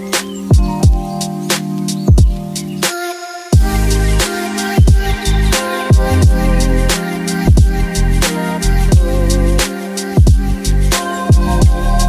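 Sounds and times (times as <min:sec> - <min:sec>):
crisp percussion: 0:00.0 - 0:12.0
deep bass hits dropping in pitch: 0:03.6 - 0:09.6, 0:10.3 - 0:12.0.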